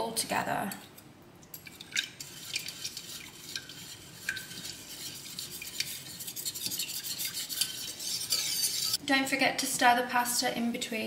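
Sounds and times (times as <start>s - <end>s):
whisk scraping in a metal pan: 1.6s - 9.0s.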